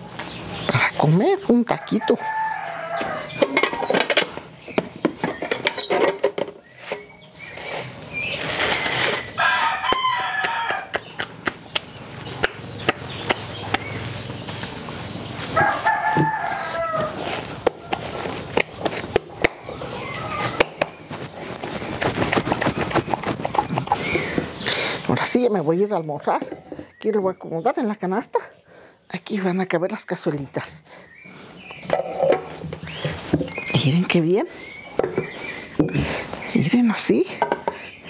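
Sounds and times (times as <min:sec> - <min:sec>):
rooster crowing: 0:01.7 - 0:03.6, 0:09.4 - 0:11.0, 0:15.6 - 0:18.3.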